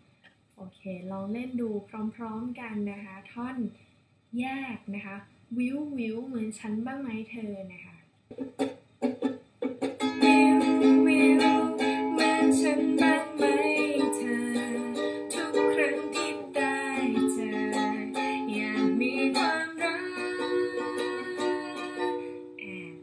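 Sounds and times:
ukulele strumming: 0:08.3 - 0:23.0.

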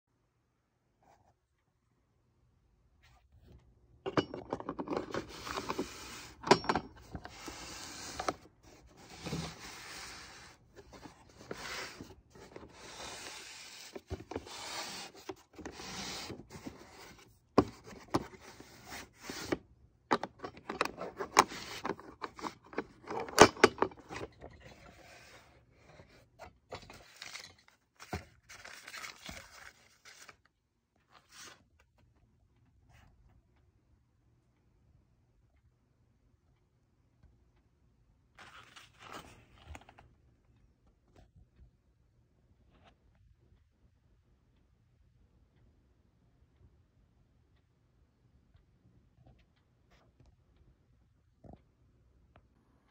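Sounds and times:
rubbing and scraping of a case: 0:04.1 - 0:30.3.

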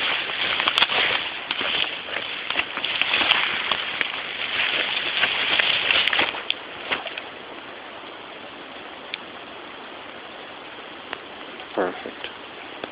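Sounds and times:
rain pattering on leaves: 0:00.0 - 0:08.2.

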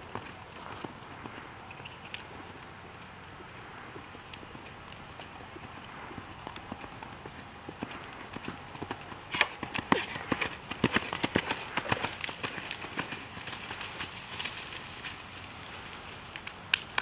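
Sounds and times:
horse hoofbeats on sand: 0:00.0 - 0:01.5, 0:03.9 - 0:16.1.

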